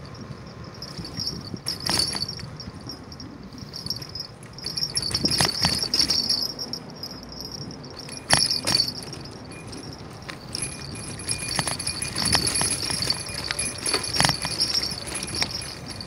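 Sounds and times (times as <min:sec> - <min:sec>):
bike rattling over bumps: 0:00.0 - 0:16.0
bicycle freewheel ticking: 0:07.5 - 0:16.0.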